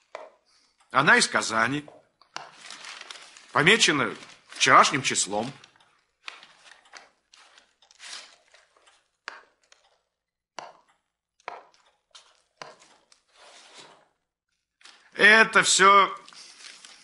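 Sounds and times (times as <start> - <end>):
paper rustling: 2.4 - 9.7, 12.1 - 15.2, 16.2 - 17.0
papers tapping on desk: 5.4 - 9.9, 10.6 - 13.2.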